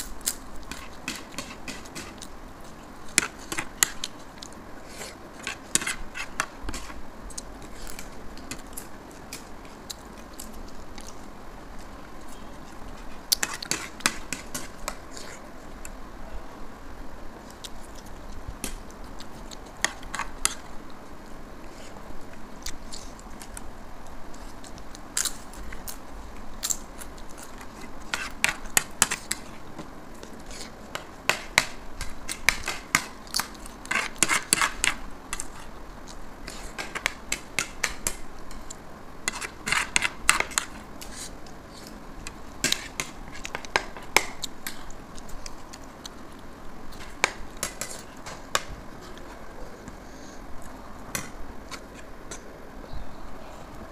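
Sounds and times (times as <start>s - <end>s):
spoons scraping ceramic plates: 39.3s - 41.3s
chewing: 44.4s - 47.2s.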